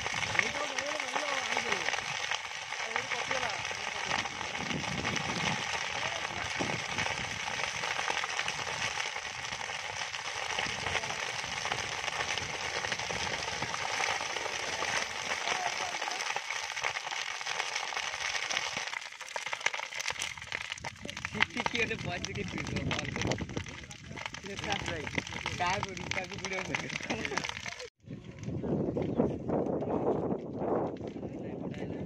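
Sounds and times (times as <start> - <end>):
sharp fire pops: 0.0 - 27.9
fire crackling in dry vegetation: 0.0 - 31.2.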